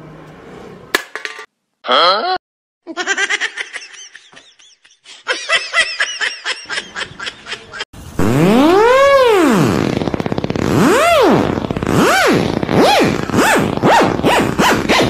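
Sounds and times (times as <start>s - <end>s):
person laughing: 1.9s - 7.9s.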